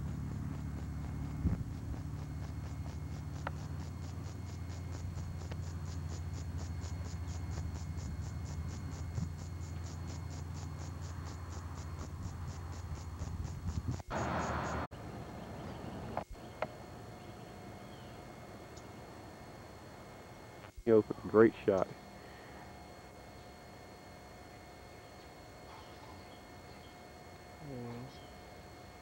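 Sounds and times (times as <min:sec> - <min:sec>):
steady low hum: 0:00.0 - 0:29.0
high-pitched insect chirping: 0:00.8 - 0:14.9, 0:25.0 - 0:29.0.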